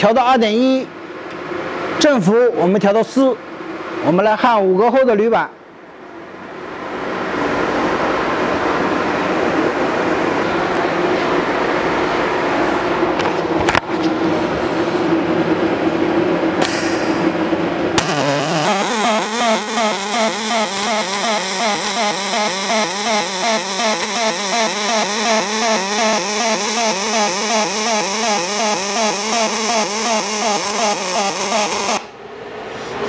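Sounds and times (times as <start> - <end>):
steady hum: 5.4 - 33.0
pulsing welding arc buzz: 18.0 - 32.2.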